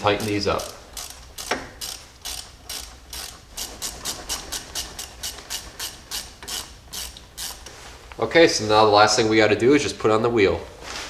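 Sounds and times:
ratchet wrench clicking: 0.0 - 7.7.

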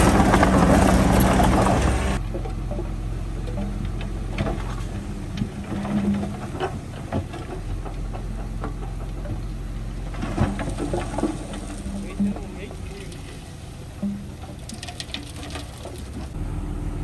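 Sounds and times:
diesel truck engine running: 0.0 - 14.7, 15.6 - 17.0
rocks tumbling onto pile: 3.6 - 16.4.

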